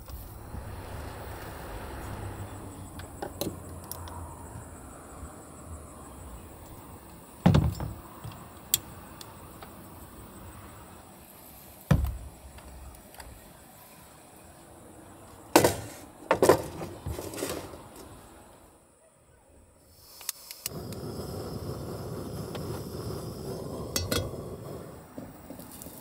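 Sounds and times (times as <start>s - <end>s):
faint low rumble: 0.0s - 3.2s.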